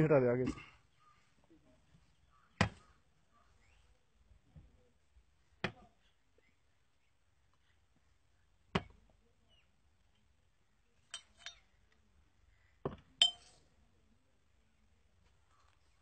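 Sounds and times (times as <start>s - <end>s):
glass bottles clinking: 13.2s - 13.5s.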